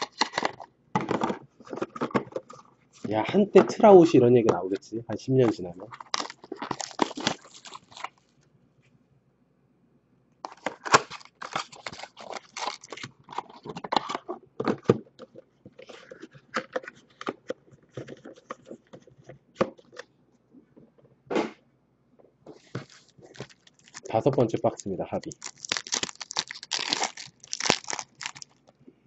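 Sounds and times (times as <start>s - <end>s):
foil packs crinkling and rustling: 5.9s - 8.2s, 10.5s - 13.8s, 22.6s - 28.7s.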